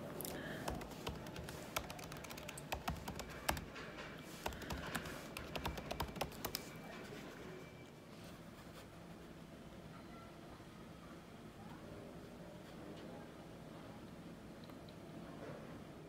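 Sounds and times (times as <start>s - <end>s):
laptop keyboard typing: 0.3s - 6.8s.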